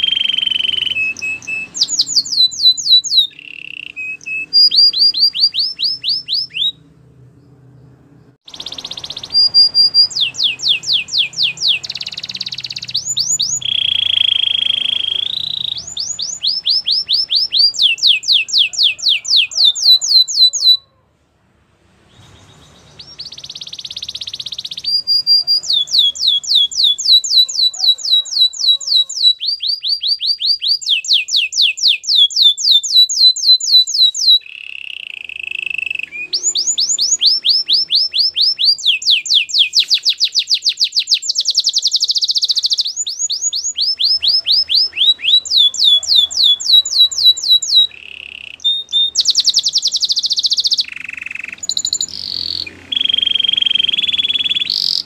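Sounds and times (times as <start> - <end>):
canary singing trills: 0.0 - 21.1, 22.1 - 55.0.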